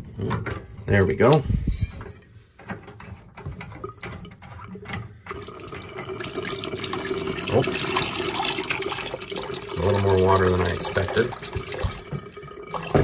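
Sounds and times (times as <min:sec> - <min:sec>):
water pouring into steel bowl: 0:05.3 - 0:13.0.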